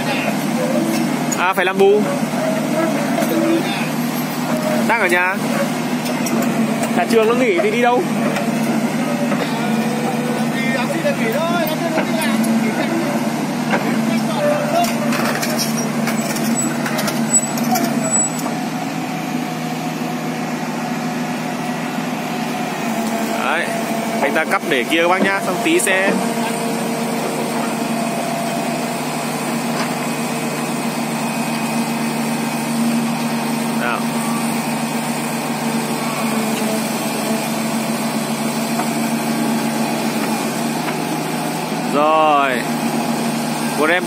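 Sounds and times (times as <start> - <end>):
excavator diesel engine running: 0.0 - 44.0.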